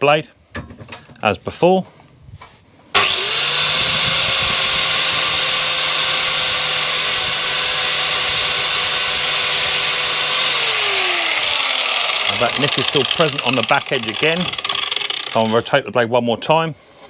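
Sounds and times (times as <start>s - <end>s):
angle grinder grinding metal: 3.0s - 15.9s.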